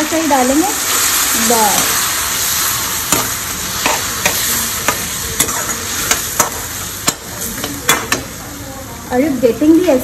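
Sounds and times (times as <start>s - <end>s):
vegetables sizzling in wok: 0.0s - 10.0s
metal spatula scraping wok: 0.9s - 8.4s.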